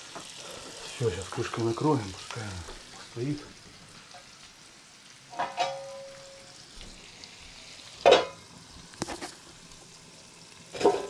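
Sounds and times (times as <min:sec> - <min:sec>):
food sizzling in a frying pan: 0:00.0 - 0:11.0
metal cookware clanking: 0:05.3 - 0:06.6, 0:08.0 - 0:08.4, 0:10.8 - 0:11.0.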